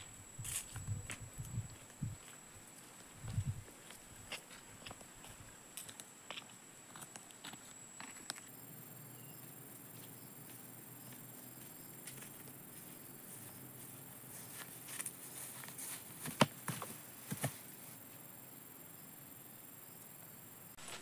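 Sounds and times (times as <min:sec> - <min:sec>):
footsteps on grass: 0:00.0 - 0:08.3, 0:09.4 - 0:17.8
insect hiss: 0:00.0 - 0:21.0.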